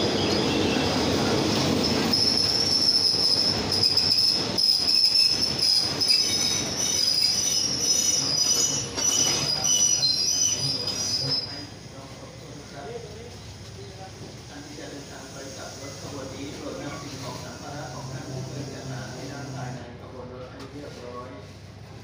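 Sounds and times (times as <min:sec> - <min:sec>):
train wheels and brakes squealing: 0:00.0 - 0:11.8
train rumble and clatter: 0:00.0 - 0:22.0.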